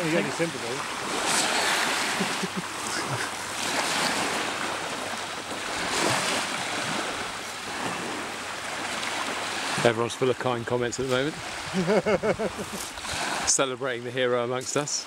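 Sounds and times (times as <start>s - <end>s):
small waves washing in: 0.0s - 13.8s
wind on microphone: 11.2s - 13.5s.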